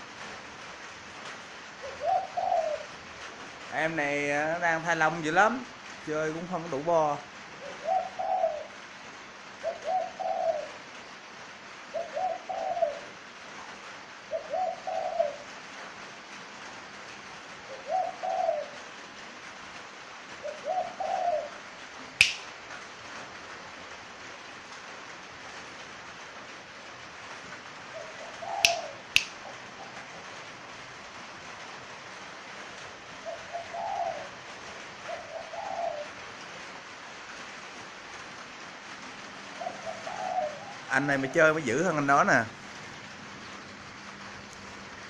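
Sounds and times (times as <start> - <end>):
dove cooing: 1.7 - 3.0, 7.6 - 8.8, 9.5 - 11.2, 11.8 - 13.5, 14.2 - 15.5, 17.6 - 18.9, 20.2 - 21.8, 27.8 - 30.3, 33.2 - 36.3, 39.5 - 42.0
sharp clicks: 22.2 - 22.5, 28.7 - 29.4.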